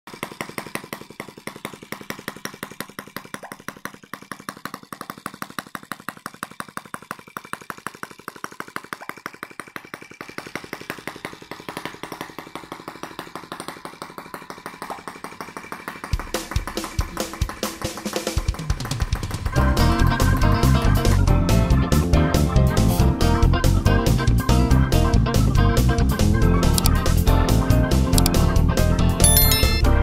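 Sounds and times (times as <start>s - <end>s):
small engine putter: 0.1s - 18.1s.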